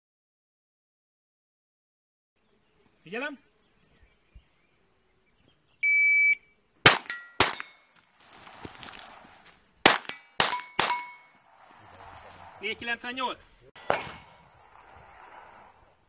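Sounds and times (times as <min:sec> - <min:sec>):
shot timer beep: 0:05.8 - 0:06.4
pistol shots: 0:06.8 - 0:07.9, 0:09.8 - 0:11.4, 0:13.8 - 0:15.2
steel plates ringing: 0:10.2 - 0:11.4.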